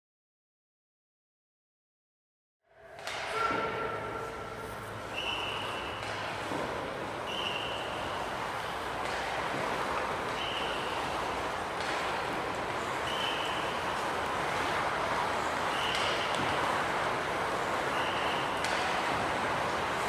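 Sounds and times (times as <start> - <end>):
skate blades scraping ice: 4.3 - 20.0.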